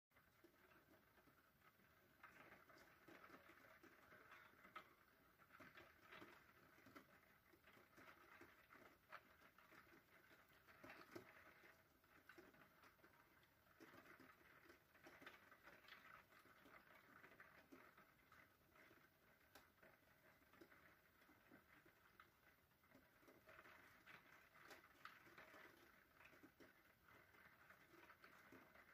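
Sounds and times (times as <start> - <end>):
rain tapping on window: 0.2 - 28.9
soft steady hiss: 0.2 - 28.9.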